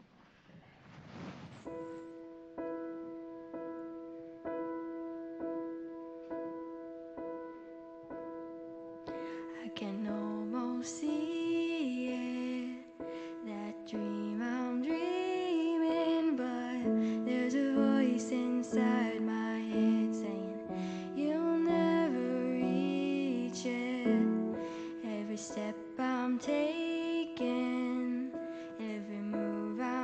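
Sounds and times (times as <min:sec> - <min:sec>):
young female voices singing: 0:13.5 - 0:30.0.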